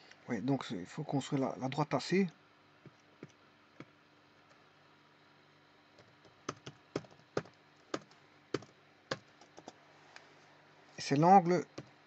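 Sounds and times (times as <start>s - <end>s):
typing on computer keyboard: 6.0s - 9.8s.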